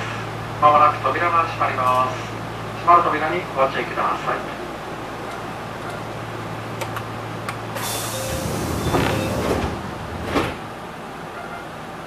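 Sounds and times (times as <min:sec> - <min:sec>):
train humming: 0:00.0 - 0:12.0
pneumatic door hiss: 0:07.8 - 0:10.6
train door thump: 0:07.8 - 0:10.8.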